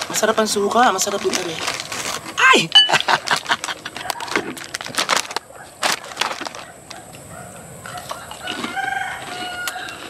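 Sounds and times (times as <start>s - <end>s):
plastic chip bag crackling: 0.0s - 7.1s
rooster crowing: 7.9s - 10.0s.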